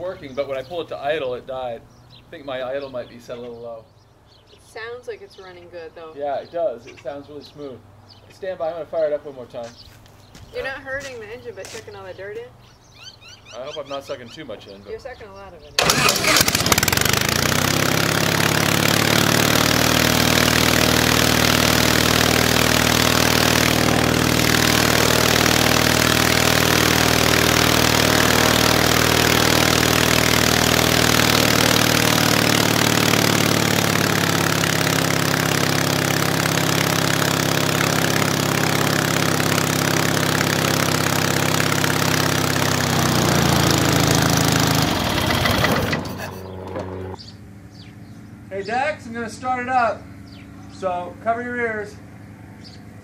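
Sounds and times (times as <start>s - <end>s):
aircraft engine running: 10.6s - 53.0s.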